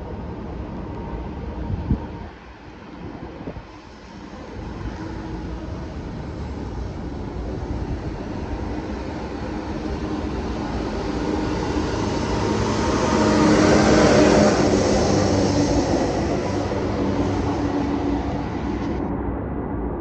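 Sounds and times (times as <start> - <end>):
wheel noise on track: 0.0 - 19.1
rail machine engine hum: 0.0 - 19.2.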